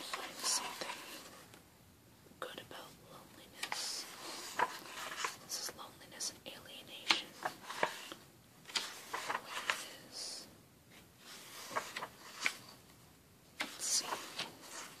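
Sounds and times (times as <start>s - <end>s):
hand smoothing page: 0.0s - 1.4s, 3.6s - 5.5s, 7.0s - 10.1s, 10.9s - 12.8s, 13.6s - 15.0s
book pages turning: 0.0s - 1.6s, 3.4s - 5.8s, 7.0s - 15.0s.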